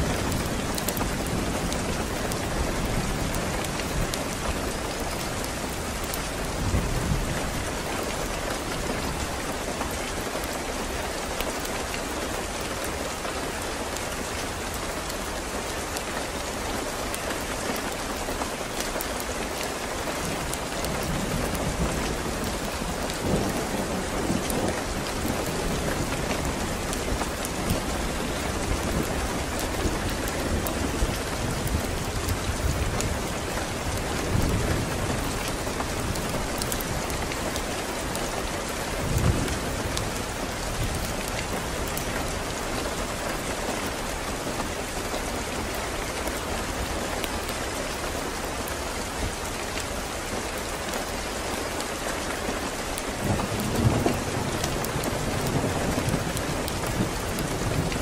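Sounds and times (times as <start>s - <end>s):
raindrop ticks: 17.1s - 38.3s.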